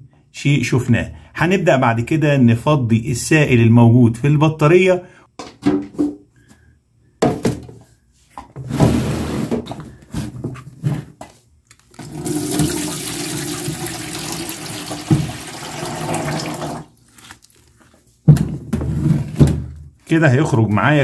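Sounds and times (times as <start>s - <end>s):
liquid pouring into plastic tub: 12.0s - 17.0s.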